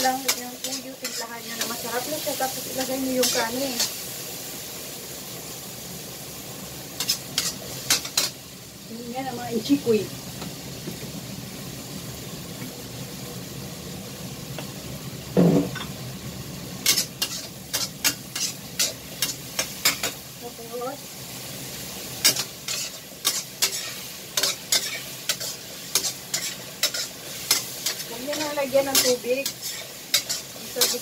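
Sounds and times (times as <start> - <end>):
vegetables sizzling in a wok: 0.0 - 31.0
metal ladle scraping a wok: 16.8 - 20.2, 22.2 - 31.0.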